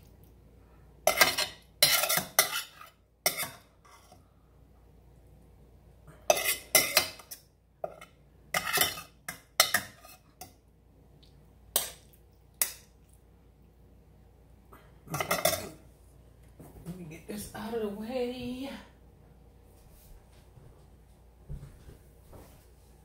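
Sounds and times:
metal spoon scraping pot: 1.1 - 4.2, 6.3 - 10.5, 15.1 - 15.8.

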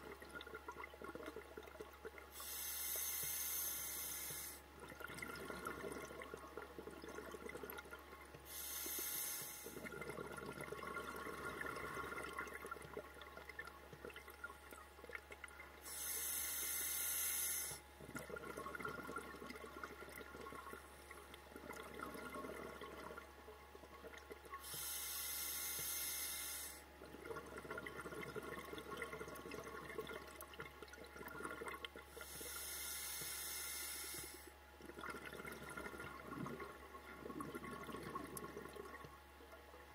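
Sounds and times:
bubbling and crackle: 0.0 - 39.9
regulator breath rushing underwater: 32.1 - 34.5.

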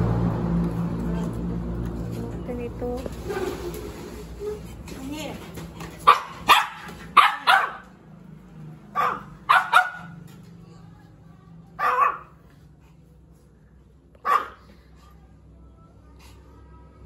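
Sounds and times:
dog barking: 6.0 - 8.0, 8.9 - 10.2, 11.8 - 12.4, 14.2 - 14.7.

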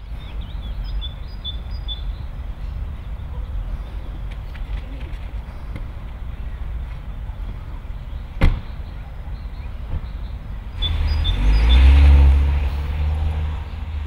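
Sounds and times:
car door slamming: 8.4 - 8.8
car engine revving: 10.8 - 14.0.

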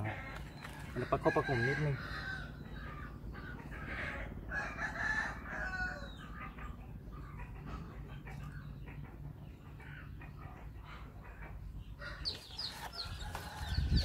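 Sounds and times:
rooster crowing: 1.0 - 2.5, 4.0 - 6.1
steady low hum: 1.9 - 14.0.

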